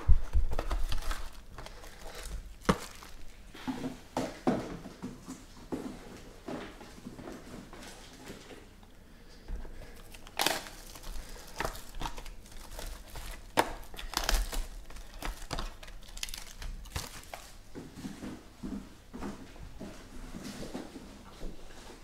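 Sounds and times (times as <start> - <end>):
plastic shrink-wrap crinkling and tearing: 0.0 - 3.5, 9.8 - 17.6.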